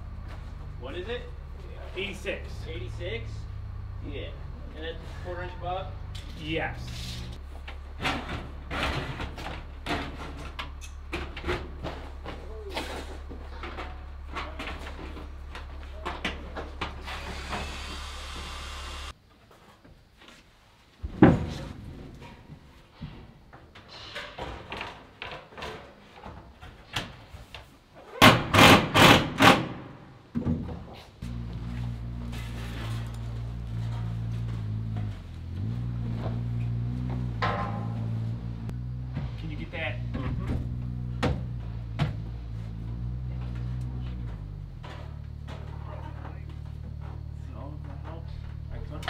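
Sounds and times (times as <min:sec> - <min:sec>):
steady low hum: 0:00.0 - 0:19.1
steel panel scraping and sliding: 0:32.3 - 0:34.4.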